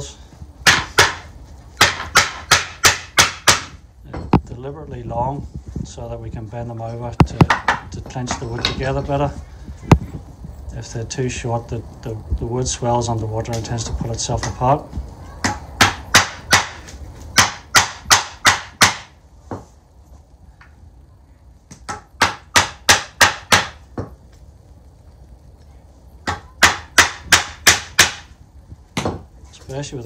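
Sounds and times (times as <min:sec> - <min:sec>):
hammer driving nails into wood: 0:26.3 - 0:28.3.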